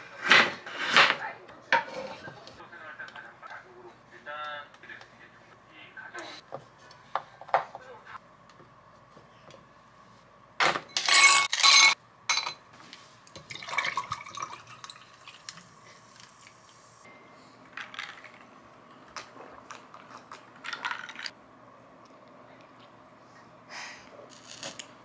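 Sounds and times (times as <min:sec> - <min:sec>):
sparkling water fizzing and trickling: 0:13.4 - 0:17.1.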